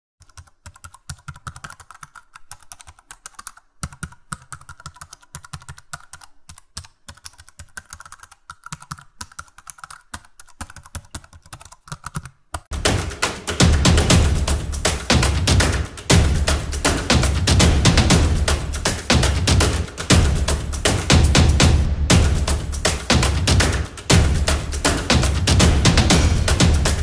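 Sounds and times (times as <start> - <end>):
computer keyboard typing: 0.2 - 12.8.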